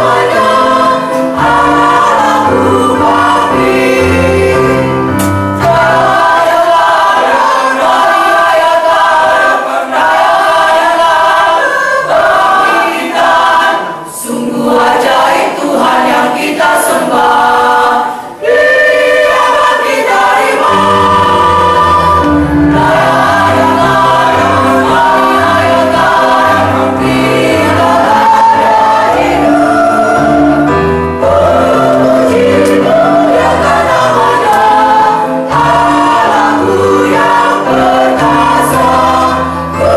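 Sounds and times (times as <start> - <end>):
choir singing: 0.0 - 39.9.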